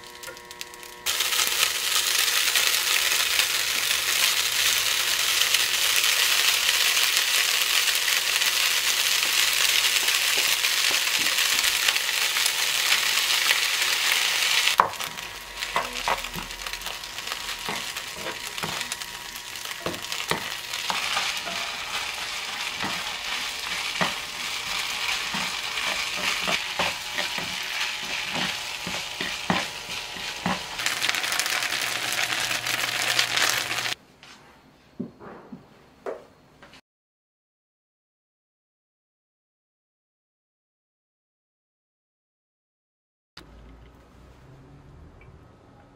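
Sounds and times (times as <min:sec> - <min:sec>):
food sizzling in a frying pan: 0:00.0 - 0:34.0
wooden spatulas scraping a pan: 0:14.5 - 0:34.0.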